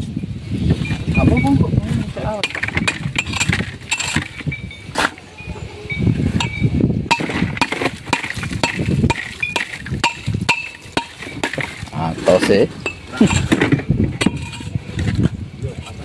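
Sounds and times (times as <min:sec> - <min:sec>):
metal blade chopping ice: 0:02.4 - 0:04.4, 0:07.1 - 0:14.7
ice clinking and cracking: 0:07.1 - 0:12.0.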